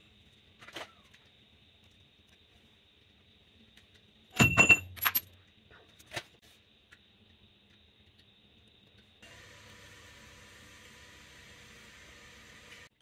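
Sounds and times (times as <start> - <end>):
steel parts clinking on metal: 4.4 - 5.3.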